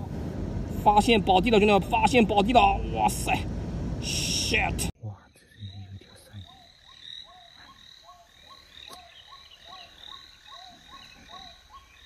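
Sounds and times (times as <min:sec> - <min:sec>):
frogs croaking: 0:05.0 - 0:12.0.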